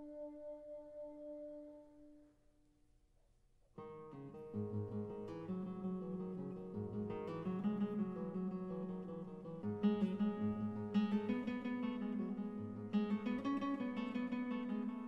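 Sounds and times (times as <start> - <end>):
acoustic guitar strumming: 3.8 - 15.0.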